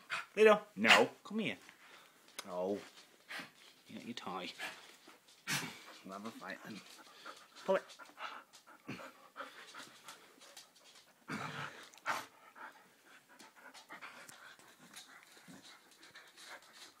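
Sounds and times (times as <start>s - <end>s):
dog panting hard: 0.0s - 0.4s, 4.4s - 17.0s.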